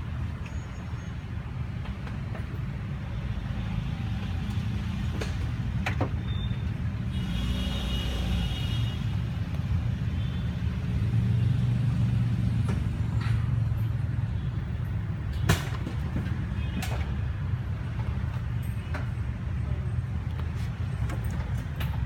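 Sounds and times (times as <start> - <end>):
vehicle engines rumbling: 0.0 - 22.0.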